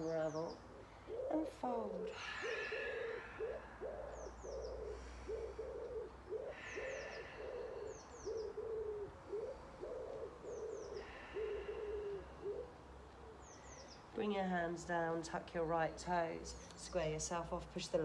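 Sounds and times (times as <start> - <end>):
small bird chirping: 0.0 - 12.6
pigeon cooing: 0.0 - 13.9.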